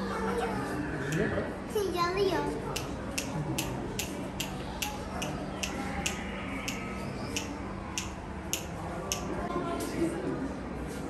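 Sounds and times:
sharp short ticks: 2.8s - 9.3s.

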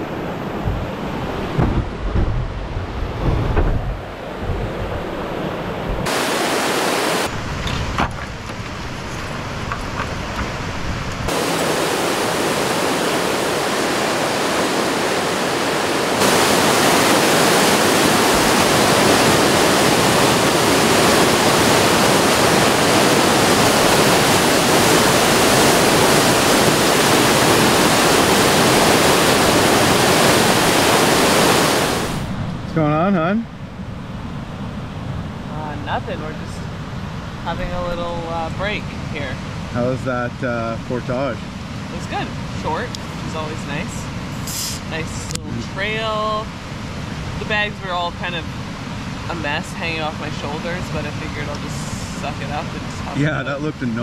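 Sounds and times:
low bumps: 0.0s - 6.1s
whitewater rushing over rapids: 2.6s - 32.4s.

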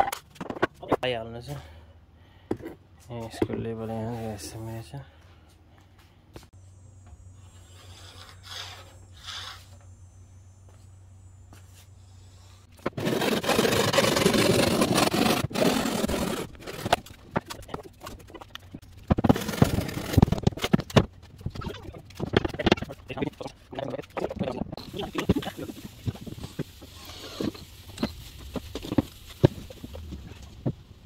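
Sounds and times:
plywood sheet scraping: 7.6s - 9.8s, 12.7s - 24.2s.

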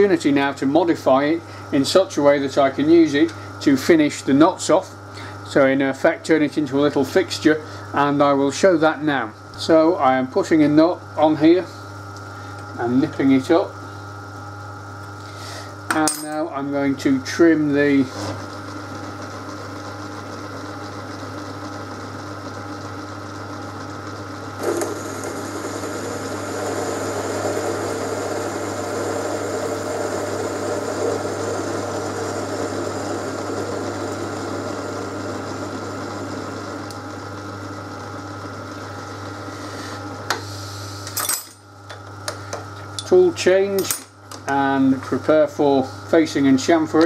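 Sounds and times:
metal lathe humming: 15.8s - 43.8s.

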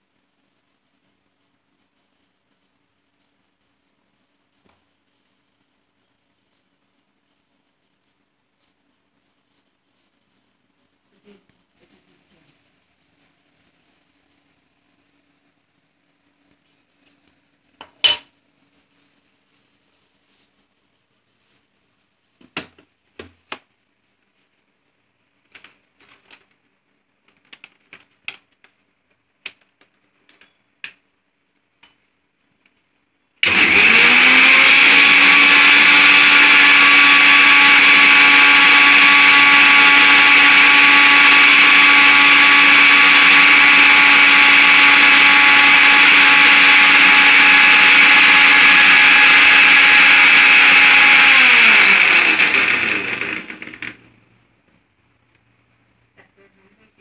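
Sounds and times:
mixer grinder motor whining: 33.4s - 54.2s.

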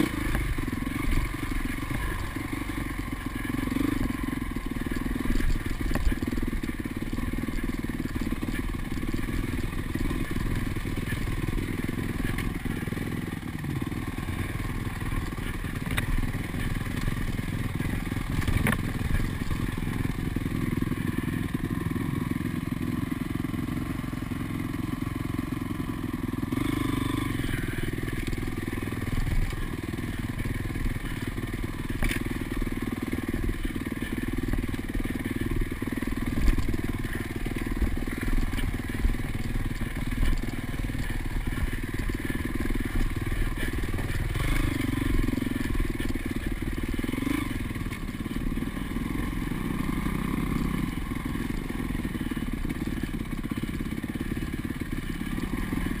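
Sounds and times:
dirt bike engine running: 0.0s - 56.0s
knocks and clatter from rough ground: 3.9s - 12.8s, 14.9s - 20.7s, 27.7s - 48.4s.

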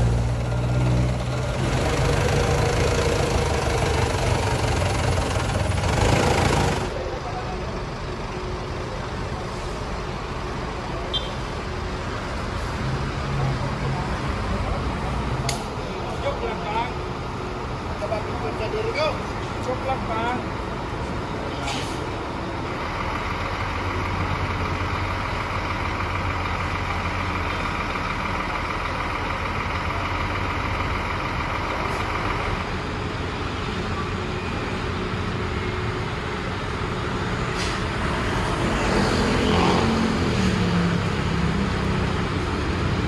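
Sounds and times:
second engine wavering in pitch: 0.0s - 7.2s
diesel bus engine idling: 0.0s - 38.6s.

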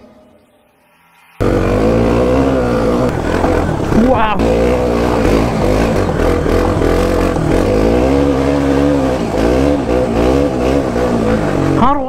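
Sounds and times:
motorcycle engine revving: 1.4s - 12.0s.

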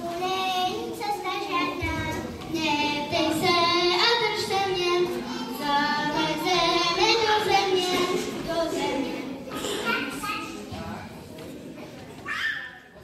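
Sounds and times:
child singing: 0.0s - 10.4s.

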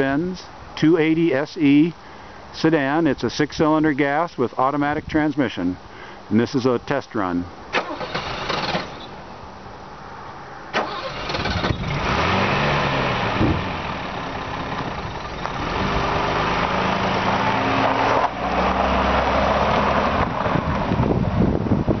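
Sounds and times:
car driving past: 10.7s - 21.0s
car engine revving: 10.8s - 20.6s.

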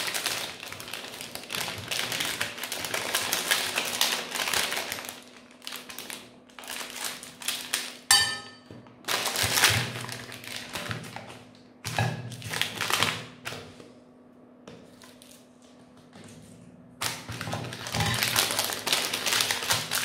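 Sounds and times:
plastic wrappers crinkling: 0.0s - 8.1s, 9.0s - 11.6s, 12.3s - 13.6s, 17.0s - 20.0s
short ringing clink: 8.1s - 8.7s.

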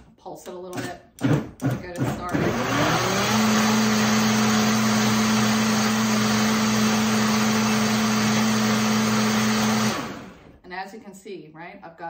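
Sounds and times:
blender whirring: 0.7s - 10.6s
blender winding down: 2.0s - 10.6s.

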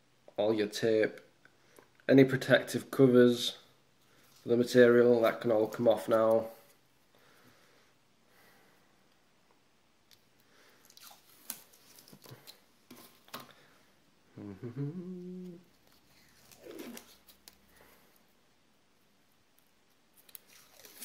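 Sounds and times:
short tearing rips: 16.1s - 17.4s, 20.2s - 21.0s
protective film peeling: 16.3s - 17.6s.

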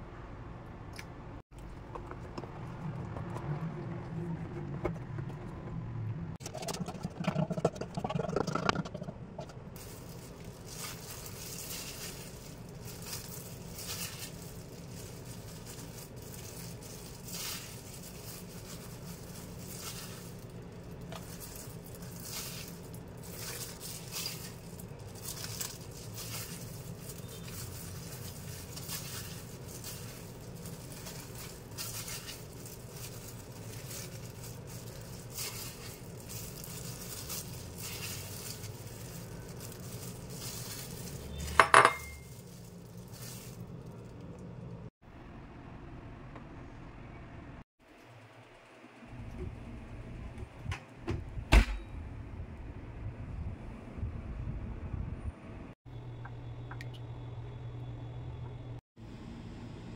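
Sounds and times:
scraping and pouring from metal bowl: 6.4s - 43.9s
low hum: 7.8s - 59.9s.

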